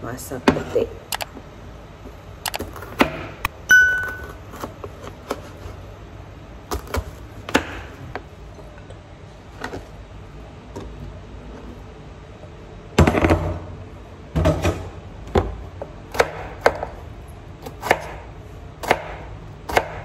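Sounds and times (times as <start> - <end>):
short ringing ping: 3.7 - 4.4.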